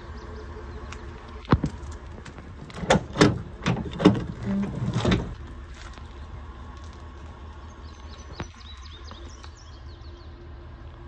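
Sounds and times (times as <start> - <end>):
tailgate clunking and rattling: 1.5 - 5.5.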